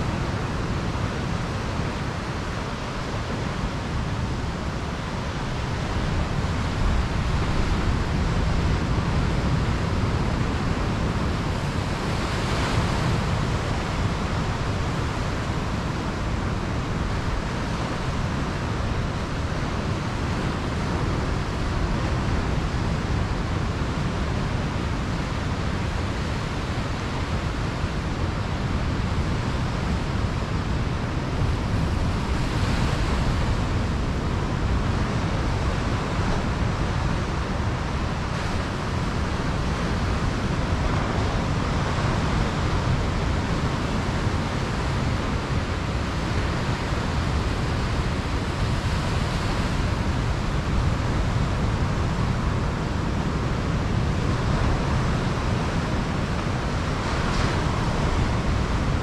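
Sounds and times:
ocean surf breaking on beach: 0.0 - 59.0.

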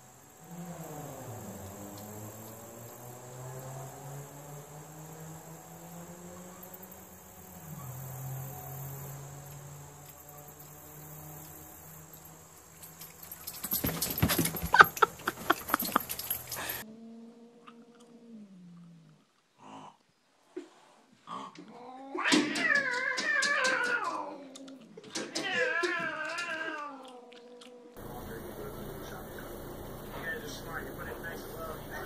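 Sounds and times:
insects chirring: 0.0 - 16.8, 28.0 - 32.0
dogs and cat fighting: 0.2 - 30.2
low hum: 28.0 - 32.0.

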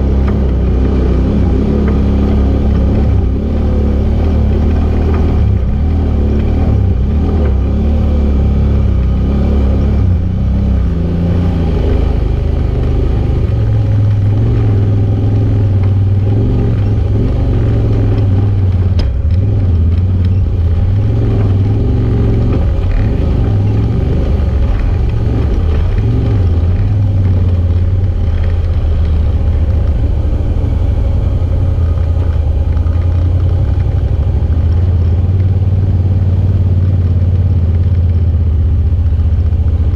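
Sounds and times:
utv engine running: 0.0 - 39.9.

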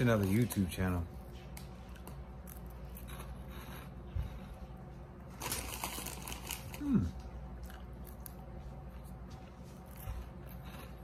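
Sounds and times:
cheese puff crunching: 5.2 - 11.0.

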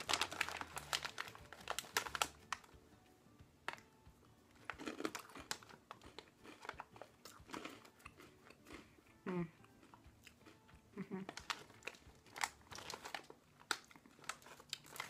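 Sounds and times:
person crunching and chewing: 0.0 - 2.6, 4.6 - 15.0
snack wrapper crinkling: 0.0 - 2.8, 4.5 - 8.9, 11.2 - 15.0.

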